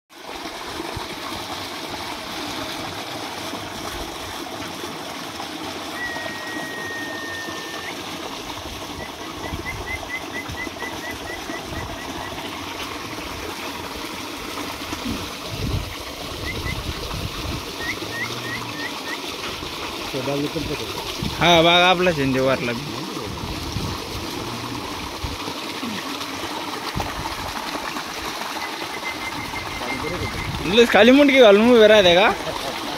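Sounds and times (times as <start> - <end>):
running water: 0.1 - 32.9
bird whistling and chirping: 6.0 - 8.0, 9.0 - 12.3, 16.4 - 16.8, 17.8 - 19.2, 28.6 - 30.7.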